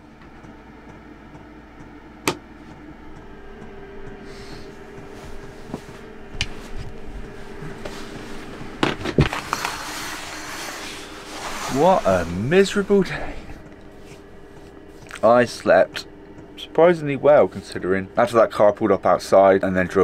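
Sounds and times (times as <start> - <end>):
faint steady hum: 0.0 - 20.0
curtain fabric rustle: 5.2 - 13.1.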